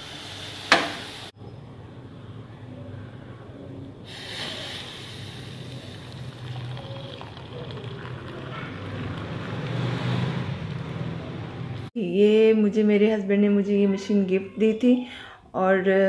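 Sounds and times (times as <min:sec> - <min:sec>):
tea pouring into a mug: 0:04.6 - 0:09.9.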